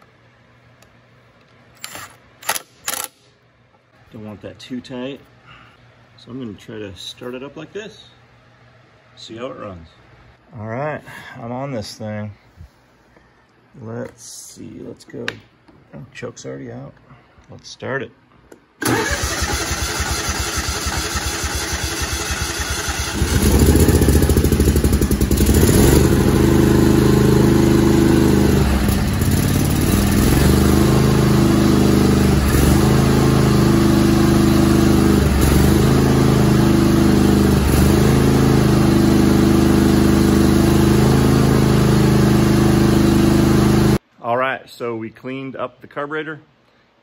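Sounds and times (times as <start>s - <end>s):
engine cranking on starter: 18.8s - 26.4s
engine running: 18.8s - 44.0s.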